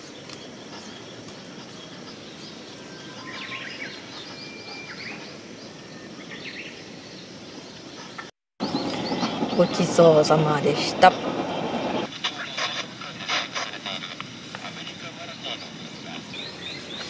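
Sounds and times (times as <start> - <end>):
birds chirping: 0.0 - 17.0
outdoor background noise: 0.0 - 17.0.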